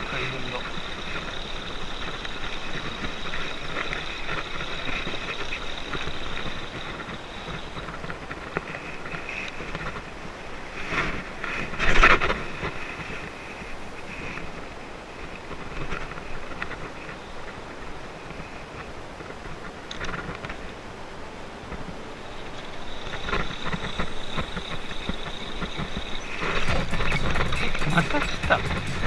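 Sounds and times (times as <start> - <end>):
water around paddleboard: 0.0 - 29.0
wind on microphone: 0.0 - 29.0.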